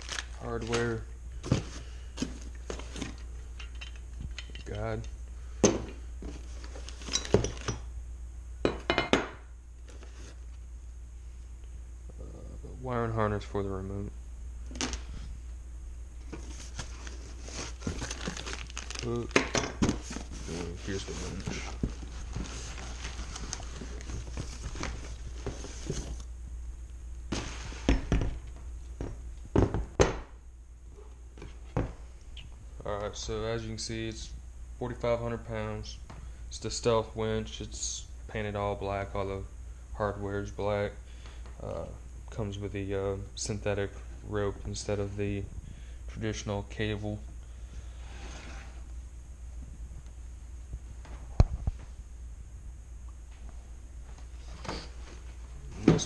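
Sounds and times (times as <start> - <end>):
cardboard rustling and scraping: 16.2 - 19.1, 19.8 - 26.2, 47.9 - 48.9.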